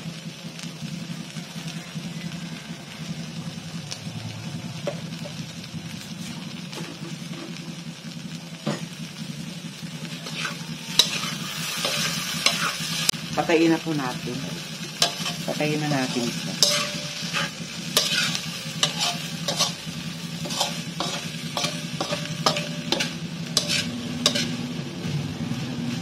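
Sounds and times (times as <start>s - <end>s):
tofu sizzling in a hot pan: 0.0s - 26.0s
low steady hum: 0.9s - 25.8s
utensil scraping a pan: 10.2s - 12.9s, 15.0s - 24.6s.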